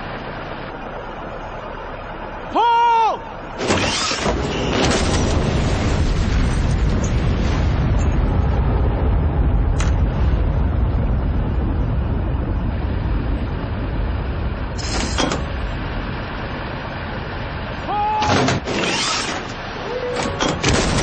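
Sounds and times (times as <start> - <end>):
engine low rumble: 0.0 - 21.0
burst of noise: 3.6 - 17.0, 17.7 - 21.0
clay target launcher clatter and hiss: 14.8 - 15.5.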